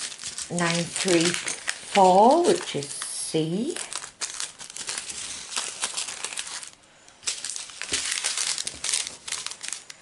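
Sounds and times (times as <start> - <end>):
foil and plastic bags crinkling: 0.0 - 10.0.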